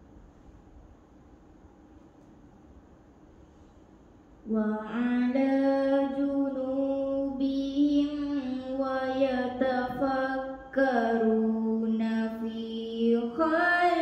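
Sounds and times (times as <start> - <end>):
girl reciting melodically: 4.4 - 14.0.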